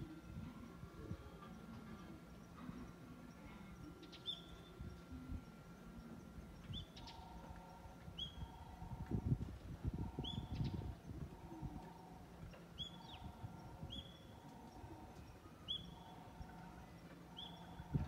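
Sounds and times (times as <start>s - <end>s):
small bird chirping: 3.2s - 8.6s, 10.0s - 18.0s.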